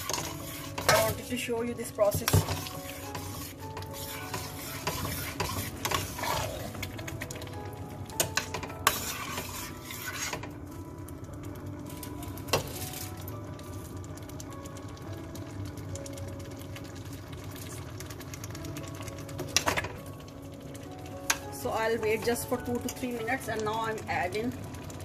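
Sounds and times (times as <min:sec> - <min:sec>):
thick sauce bubbling and popping: 0:12.4 - 0:21.5.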